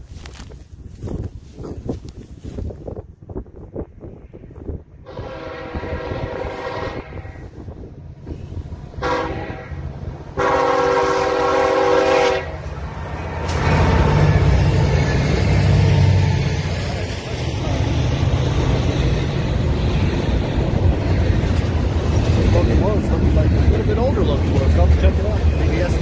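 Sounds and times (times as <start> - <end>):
locomotive engine rumble: 0.0 - 26.0
train horn blasts: 5.0 - 7.7, 8.9 - 16.2
freight cars rolling: 12.5 - 26.0.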